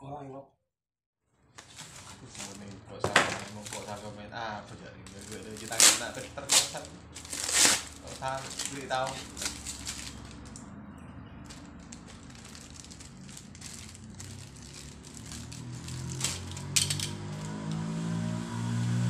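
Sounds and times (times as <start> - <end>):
plastic packaging crinkling: 1.6 - 4.1, 5.1 - 10.6, 11.4 - 17.1
small plastic parts clicking: 16.2 - 17.6.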